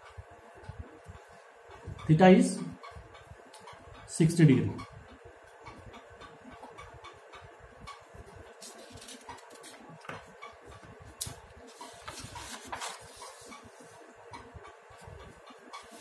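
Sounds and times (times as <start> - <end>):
paper rustling on a clipboard: 8.6 - 14.0.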